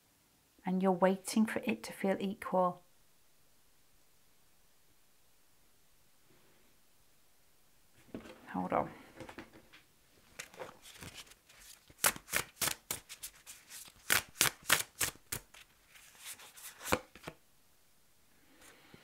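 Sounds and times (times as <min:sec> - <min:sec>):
cards being shuffled: 0:10.3 - 0:17.4.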